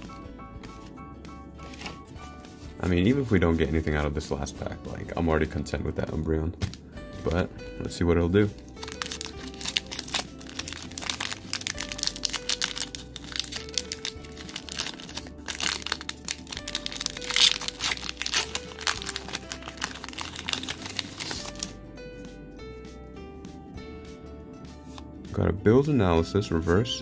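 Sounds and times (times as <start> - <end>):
background music: 0.0 - 27.0
foil wrapper crinkling: 8.7 - 21.8.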